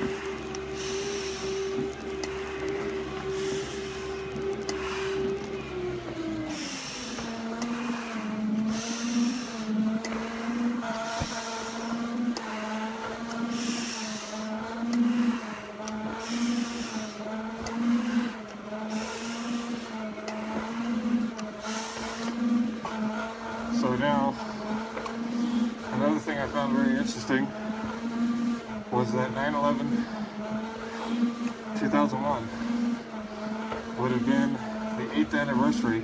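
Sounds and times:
steady machine hum: 0.0 - 36.0.

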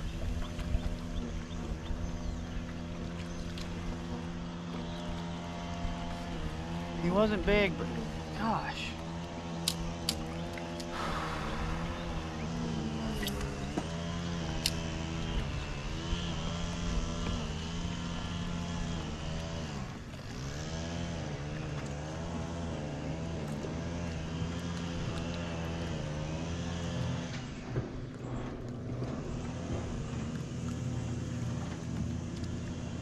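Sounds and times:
motorboat engine droning: 0.0 - 33.0.

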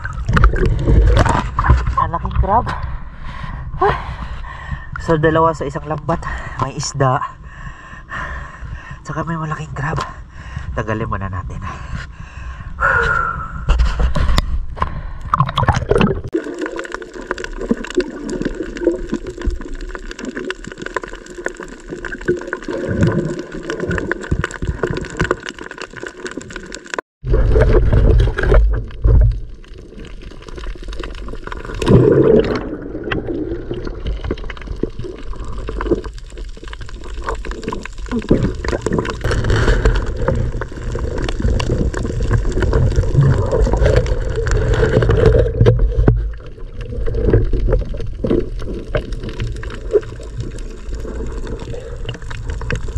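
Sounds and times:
muffled underwater gurgling: 37.0 - 52.9.

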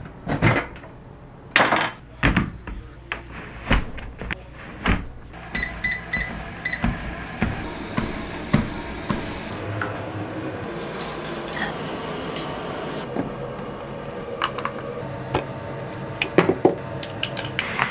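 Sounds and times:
treadmill running noise: 5.4 - 9.6
treadmill beeps: 5.5 - 7.0.

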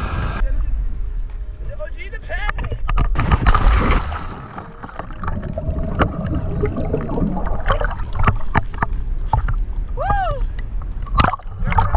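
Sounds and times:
sea water splashing against rocks: 3.2 - 9.6.

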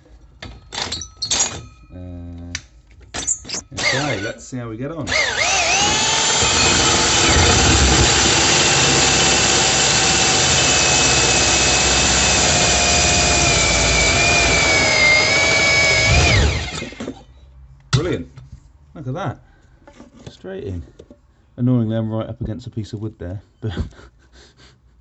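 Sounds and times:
core drill motor whine: 3.8 - 4.4, 5.1 - 17.2.

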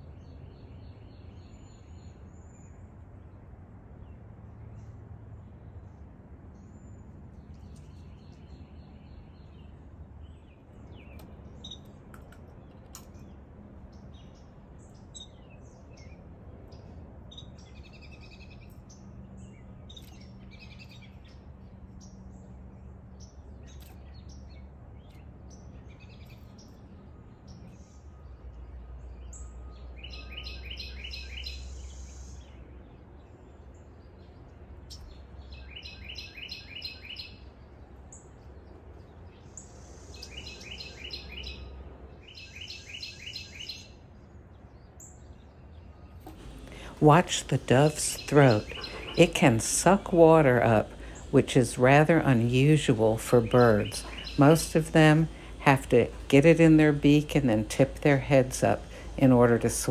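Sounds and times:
songbirds chirping: 0.0 - 59.9
bird trilled song: 6.6 - 44.0, 44.6 - 59.9
low background rumble: 44.0 - 59.9.

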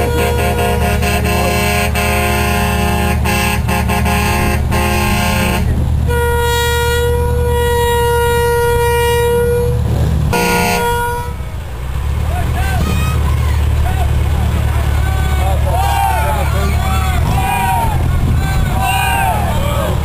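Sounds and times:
vehicle horn blast: 0.0 - 11.6
chord of steady tones: 0.0 - 12.0
low engine rumble: 0.0 - 20.0.

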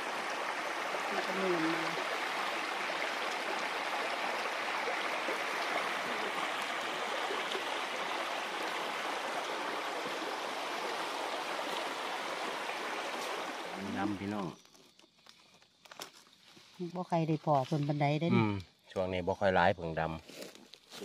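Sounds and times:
stream water rushing: 0.0 - 14.5.

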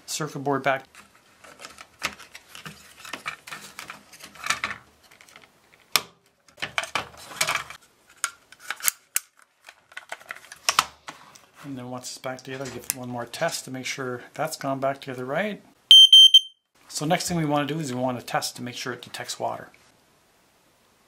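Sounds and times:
plastic parts clicking and scraping: 0.9 - 11.6.

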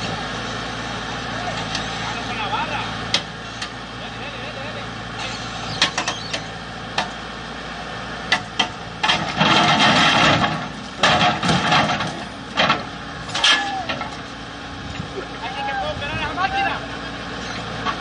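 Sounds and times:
backhoe engine running: 0.0 - 18.0
metal knocks and clanks: 8.3 - 14.2.

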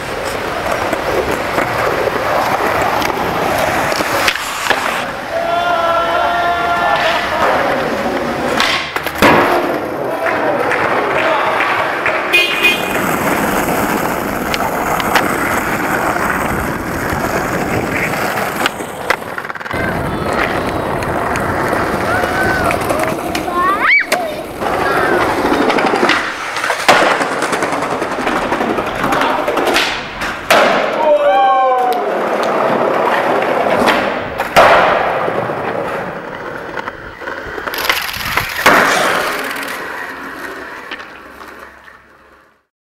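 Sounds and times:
skateboard clacks: 0.0 - 42.7
skateboard wheels rolling on asphalt: 0.0 - 42.7.

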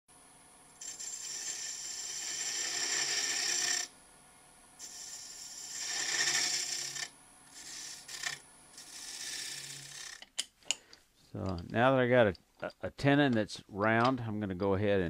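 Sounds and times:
lathe tool scraping wood: 0.8 - 3.9, 4.8 - 10.3.

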